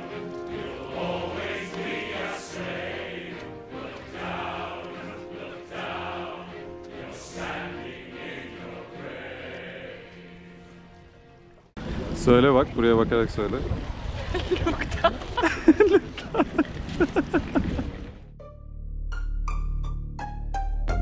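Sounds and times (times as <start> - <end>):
choir of held voices: 0.0 - 11.0.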